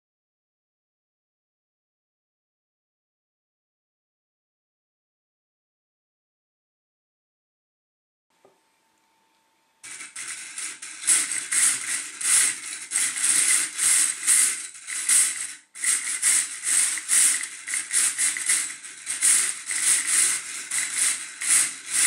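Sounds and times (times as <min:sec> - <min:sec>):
small electric motor whirring: 0:09.8 - 0:22.0.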